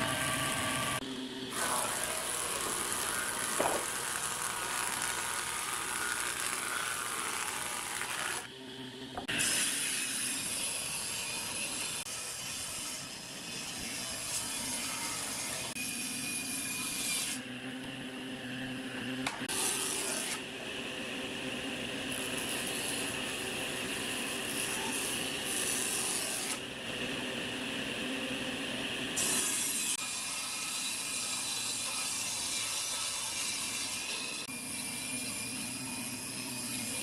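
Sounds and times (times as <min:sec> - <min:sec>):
jointer cutting wood hiss: 0:00.0 - 0:08.5
woodworking machine running: 0:00.0 - 0:10.3.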